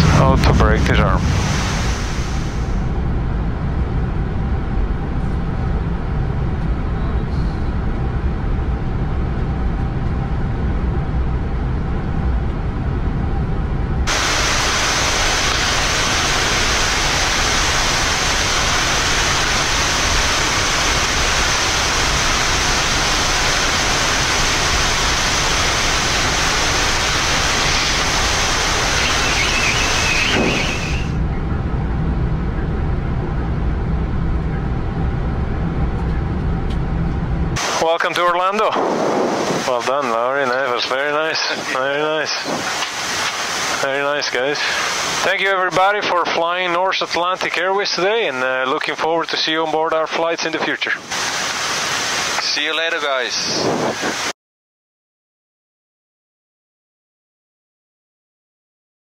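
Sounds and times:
even cockpit hiss: 0.0s - 2.9s, 14.1s - 31.2s, 37.6s - 54.3s
low aircraft rumble: 0.0s - 54.3s.

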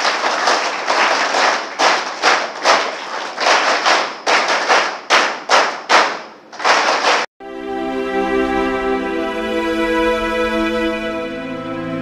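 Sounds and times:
audience rhythmic applause: 0.0s - 7.3s.

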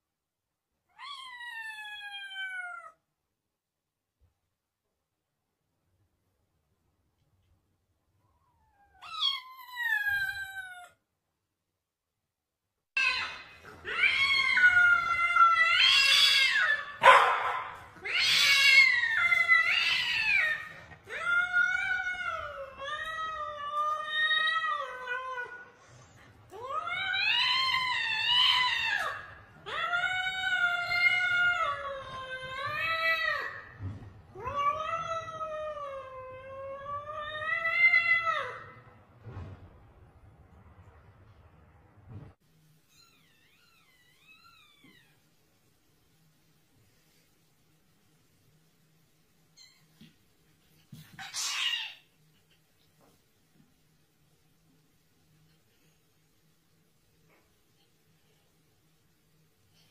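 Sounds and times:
cat yowling: 0.9s - 3.0s
cats yowling: 13.0s - 25.6s, 26.6s - 33.6s, 34.4s - 38.8s
cat hissing: 51.1s - 52.1s.

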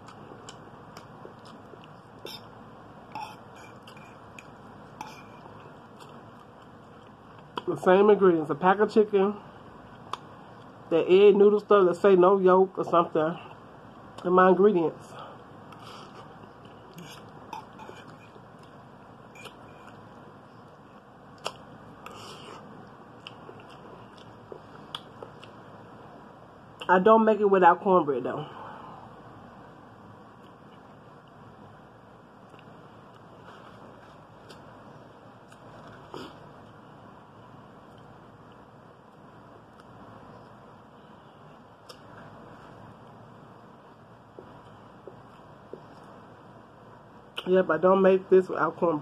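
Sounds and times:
person chewing noodles: 0.0s - 7.7s, 15.4s - 25.6s
wet mouth clicks: 21.4s - 24.3s
chewing noodles: 21.4s - 25.6s.

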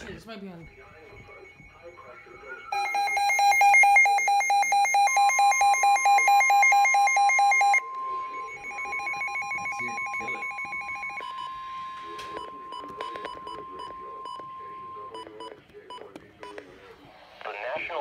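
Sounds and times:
steady high warning tone: 0.0s - 18.0s
rapid pulsed electronic beeping: 0.1s - 18.0s.

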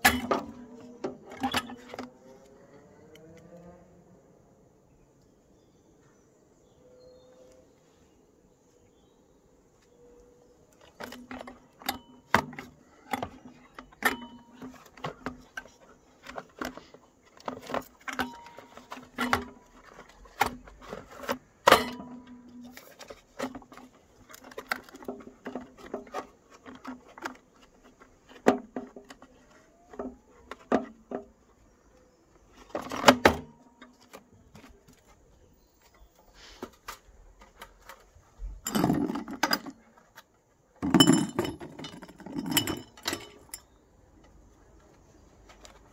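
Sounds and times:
rustling noise: 34.0s - 38.6s.

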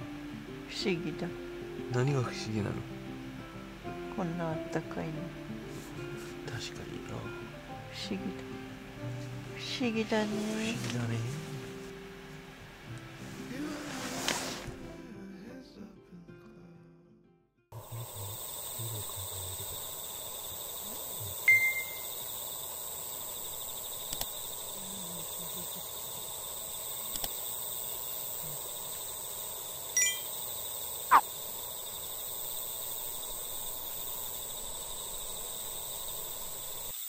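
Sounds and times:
high insect trill: 17.8s - 37.0s
short chirps: 21.5s - 22.1s.

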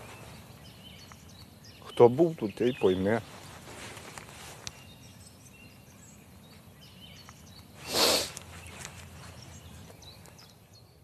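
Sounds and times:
loud hissing burst: 7.8s - 8.4s.

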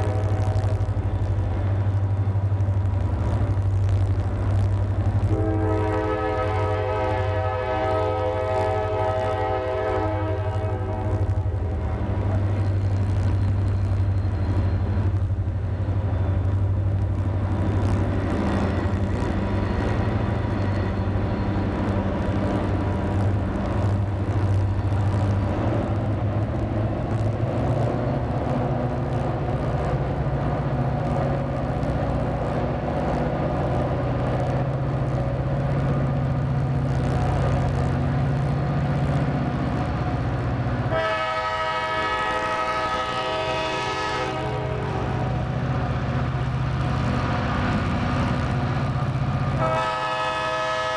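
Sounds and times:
diesel locomotive engine rumble: 0.0s - 50.9s
locomotive air horn: 5.3s - 11.4s, 40.9s - 45.3s, 49.6s - 50.9s.

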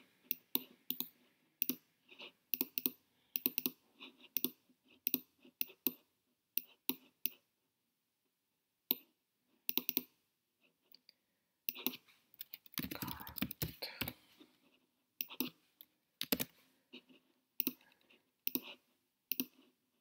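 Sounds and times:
computer mouse clicks: 0.3s - 1.9s, 2.5s - 6.0s, 9.7s - 10.2s, 10.9s - 14.2s, 15.2s - 16.6s, 17.6s - 19.6s.

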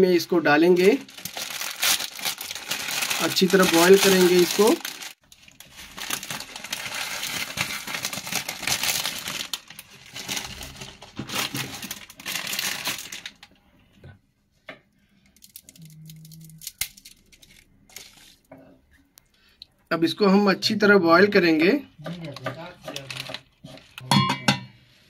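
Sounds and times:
dry noodles crinkling and crackling: 0.2s - 13.6s, 15.3s - 18.5s, 22.0s - 24.0s.

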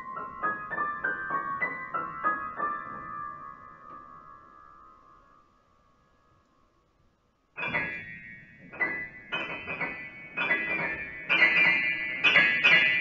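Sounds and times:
high piano chords: 0.0s - 6.5s, 7.6s - 13.0s.

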